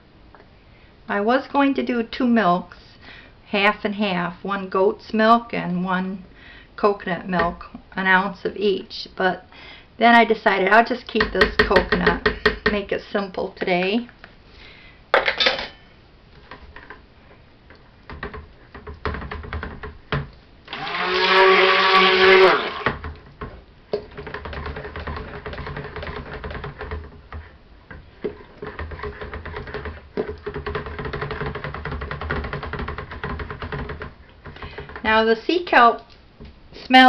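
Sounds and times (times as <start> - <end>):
immersion blender motor: 20.7 - 23.0.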